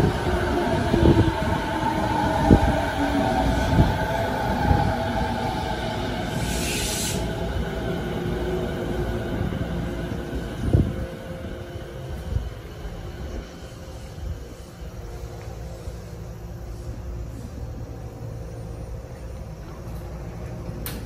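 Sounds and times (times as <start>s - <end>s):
train motors humming: 0.0s - 21.0s
brief hiss: 6.4s - 7.3s.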